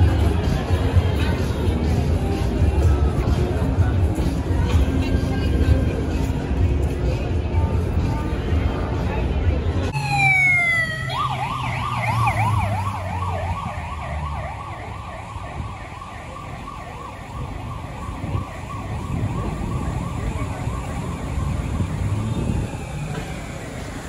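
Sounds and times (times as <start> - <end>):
street traffic rumble: 0.0 - 24.0
ambulance siren yelping: 9.9 - 24.0.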